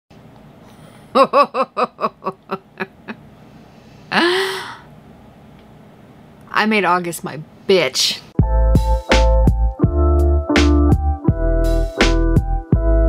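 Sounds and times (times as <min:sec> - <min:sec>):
woman laughing: 0:01.1 - 0:03.3, 0:04.1 - 0:04.8.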